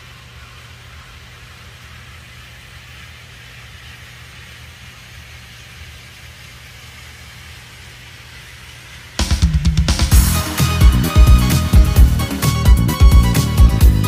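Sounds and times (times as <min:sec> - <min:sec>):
model train wheels rolling: 0:00.0 - 0:09.2
model train motor humming: 0:00.0 - 0:09.4.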